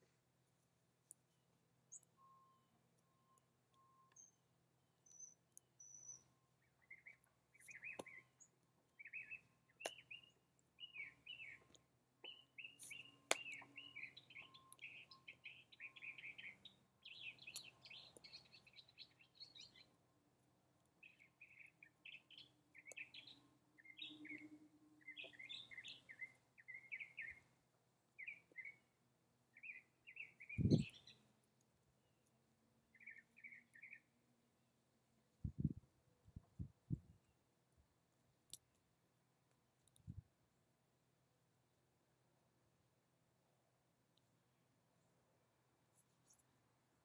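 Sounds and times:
small birds chirping: 0:01.0 - 0:20.2, 0:20.8 - 0:34.3.

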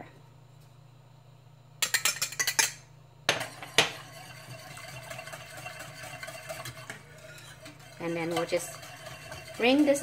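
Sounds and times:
clanks against metal saucepan: 0:01.8 - 0:10.0
wire whisk scraping saucepan: 0:03.4 - 0:10.0.

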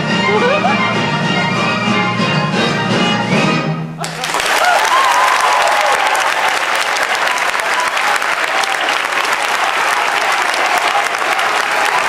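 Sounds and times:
audience applauding: 0:04.0 - 0:12.0
people cheering: 0:04.0 - 0:12.0.

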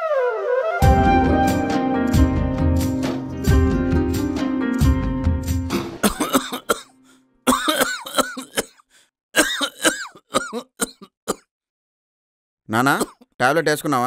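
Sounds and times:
title music: 0:00.8 - 0:06.0
man coughing: 0:06.0 - 0:11.5.

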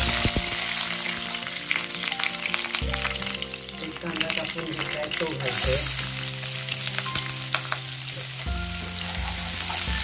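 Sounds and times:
onion sizzling in oil: 0:00.0 - 0:10.0
spatula scraping a pan: 0:08.8 - 0:10.0.

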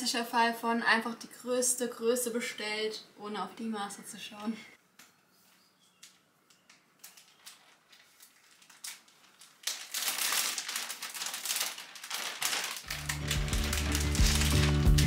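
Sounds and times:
plastic bag crinkling: 0:07.0 - 0:15.0
background music: 0:12.9 - 0:15.0.

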